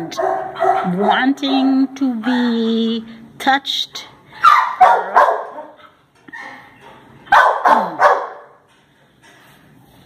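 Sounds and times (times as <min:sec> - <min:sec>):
dog coughing: 0:07.3 - 0:08.5.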